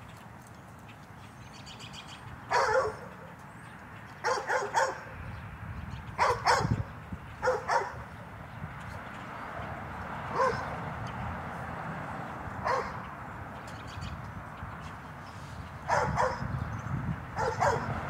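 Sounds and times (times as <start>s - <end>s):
dog barking: 2.5s - 3.3s, 4.2s - 5.1s, 6.2s - 6.8s, 7.4s - 8.0s, 10.3s - 10.7s, 12.6s - 13.1s, 15.9s - 16.5s, 17.4s - 18.0s.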